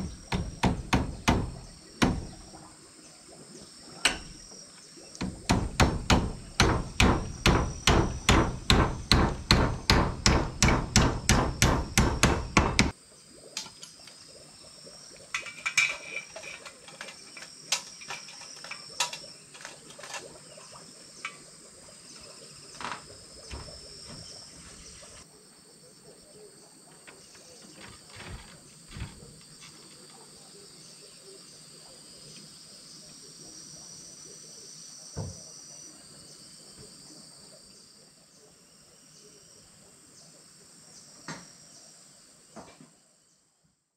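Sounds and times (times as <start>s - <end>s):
hammer driving nails into wood: 0.0s - 2.5s, 5.2s - 12.9s
insects buzzing: 0.0s - 43.8s.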